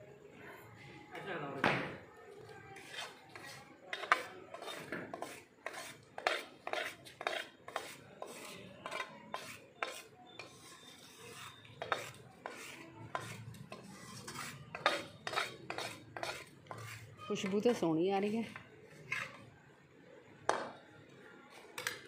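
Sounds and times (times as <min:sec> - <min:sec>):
steel ladle scraping pans: 0:02.8 - 0:17.8, 0:19.0 - 0:19.4.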